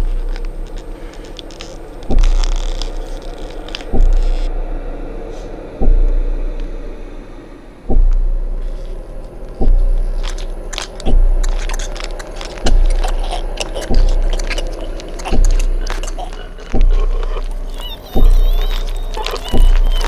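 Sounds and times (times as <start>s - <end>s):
scratchy crackling and scraping: 0.0s - 4.5s, 8.6s - 20.0s
deep booming hits: 3.9s - 11.8s, 16.7s - 18.7s.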